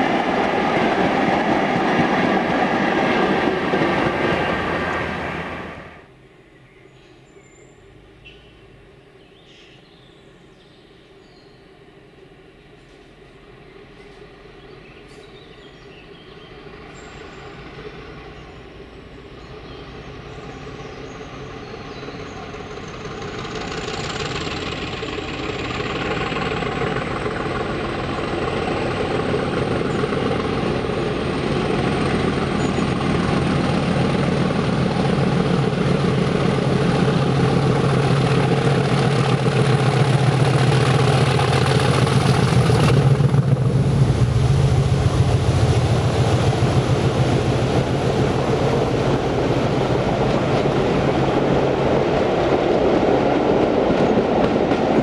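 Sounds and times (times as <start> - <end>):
diesel locomotive engine: 0.0 - 55.0
high whine: 40.8 - 51.4.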